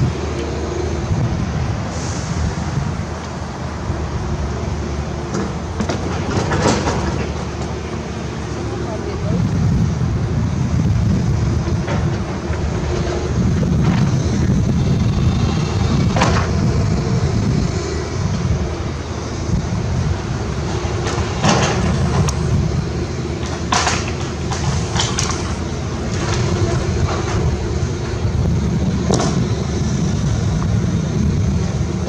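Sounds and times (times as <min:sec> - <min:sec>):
excavator diesel engine running: 0:00.0 - 0:32.0
splintering timber cracks: 0:23.4 - 0:27.4.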